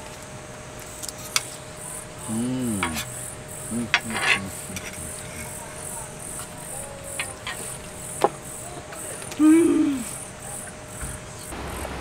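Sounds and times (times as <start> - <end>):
insects chirping: 0.0 - 12.0
person humming: 2.1 - 7.9, 9.4 - 10.2
cutlery clattering: 2.8 - 9.4.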